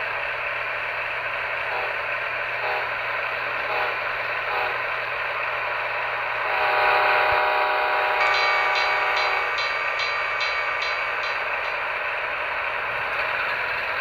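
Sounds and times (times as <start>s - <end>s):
model train rolling whir: 0.0s - 14.0s
model train horn chord: 1.7s - 5.1s, 6.2s - 10.1s.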